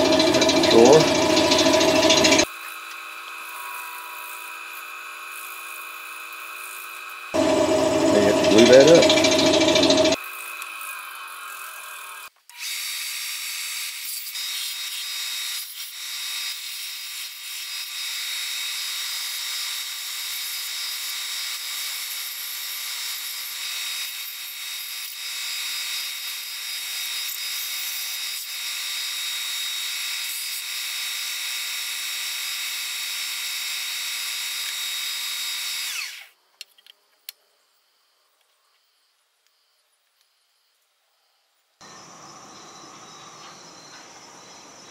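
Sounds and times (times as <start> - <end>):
belt sander running: 0.0 - 10.7, 33.5 - 36.3.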